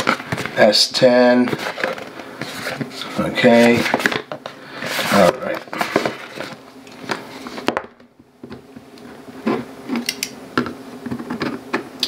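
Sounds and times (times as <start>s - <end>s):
packaging handling noises: 0.0s - 7.8s.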